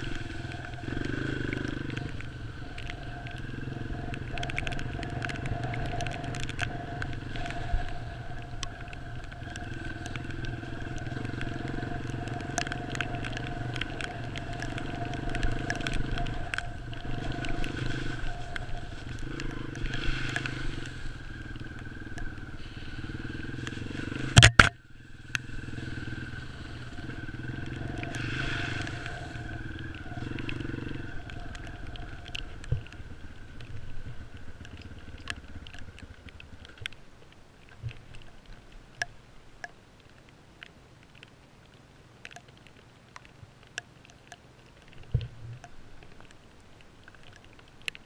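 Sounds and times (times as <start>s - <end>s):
dirt bike engine running: 0.0s - 36.8s
sharp ticks: 0.0s - 39.8s.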